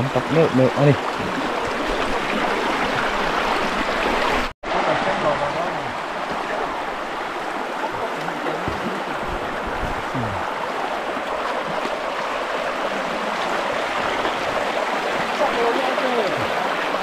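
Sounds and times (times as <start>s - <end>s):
flowing water rushing: 0.0s - 17.0s.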